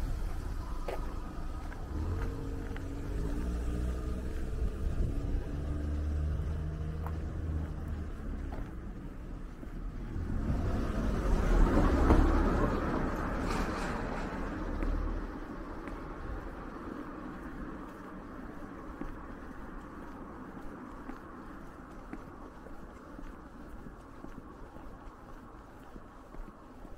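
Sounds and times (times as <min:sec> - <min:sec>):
car passing by: 0:00.0 - 0:08.8, 0:09.8 - 0:20.3
car engine humming: 0:00.0 - 0:13.4.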